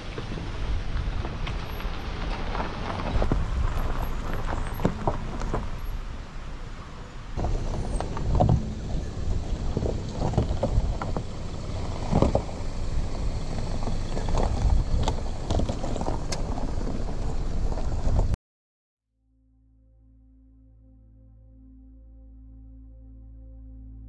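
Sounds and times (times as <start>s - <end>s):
low engine rumble: 0.0s - 18.4s
tyres crunching on stones: 0.6s - 6.0s.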